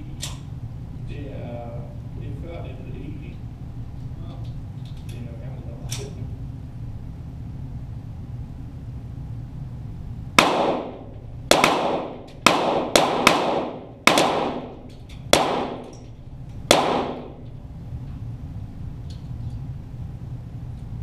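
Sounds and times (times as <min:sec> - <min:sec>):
pistol shots with echo: 0:10.4 - 0:16.0, 0:16.7 - 0:17.4.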